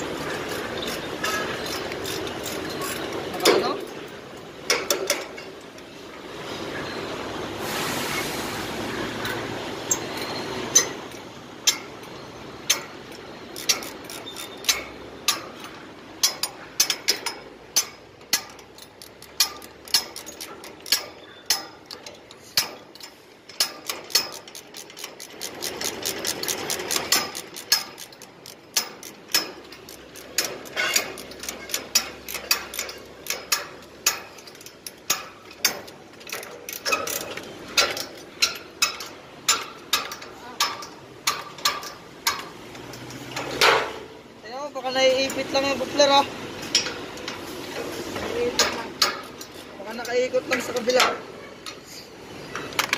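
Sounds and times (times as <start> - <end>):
ratchet spanner clicking: 0.0 - 3.2, 9.2 - 43.8.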